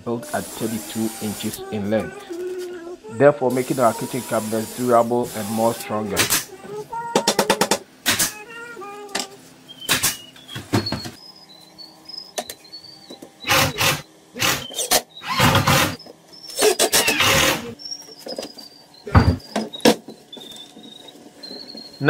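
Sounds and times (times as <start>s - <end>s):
bursts of tool noise: 9.8s - 22.0s
staple gun shots: 9.9s - 10.2s.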